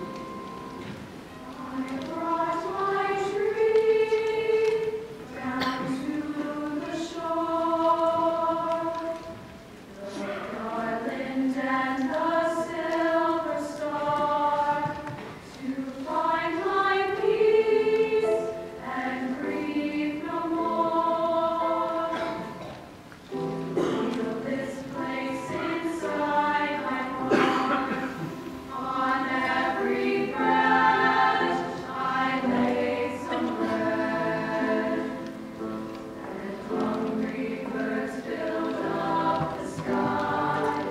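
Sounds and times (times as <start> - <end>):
piano accompaniment: 0.0 - 40.9
women's choir singing: 0.0 - 40.9.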